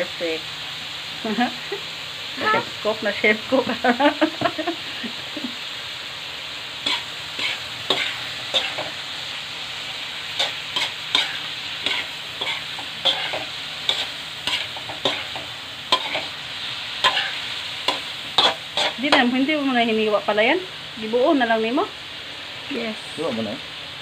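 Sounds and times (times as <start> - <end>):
food sizzling in a wok: 0.0 - 24.0
spatula scraping a pan: 6.8 - 9.0, 10.3 - 16.4, 17.0 - 19.3.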